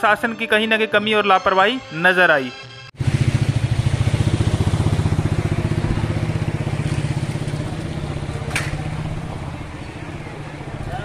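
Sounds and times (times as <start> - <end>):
engine puttering: 3.0 - 11.0.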